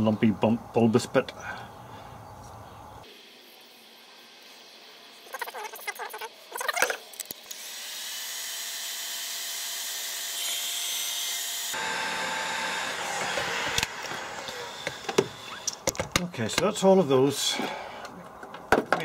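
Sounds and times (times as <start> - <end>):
heat gun blowing: 11.7 - 15.8.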